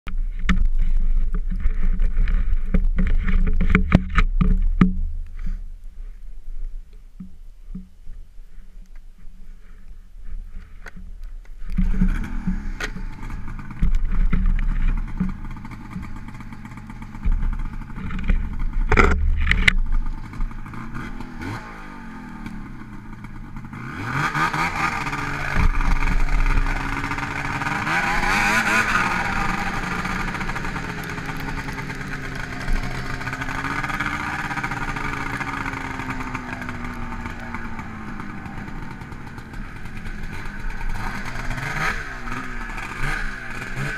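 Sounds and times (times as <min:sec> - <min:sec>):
snowmobile engine revving: 0:11.8 - 0:43.9.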